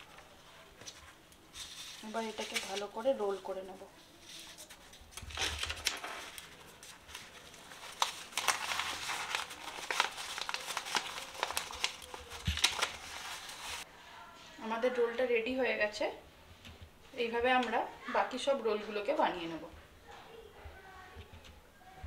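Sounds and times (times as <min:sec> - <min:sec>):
paper rustling and crinkling: 0:00.0 - 0:13.9.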